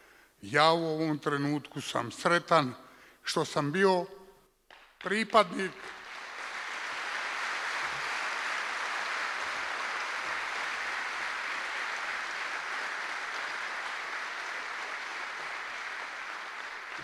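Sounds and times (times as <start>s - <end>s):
audience applauding: 5.0s - 17.0s.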